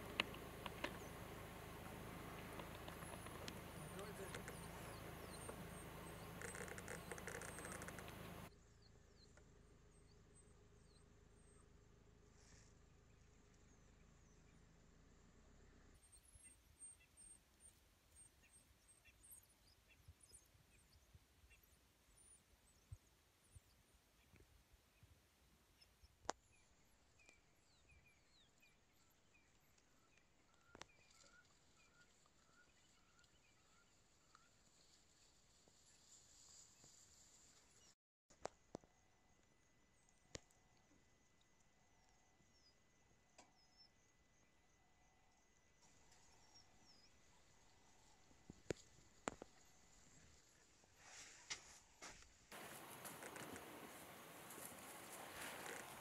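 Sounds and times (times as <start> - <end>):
sharp clicks: 0.0 - 1.1, 1.8 - 8.5
short chirping calls: 0.0 - 8.5
bird chirps: 0.0 - 11.7, 25.8 - 34.9
rapid high squeaks: 6.2 - 8.4.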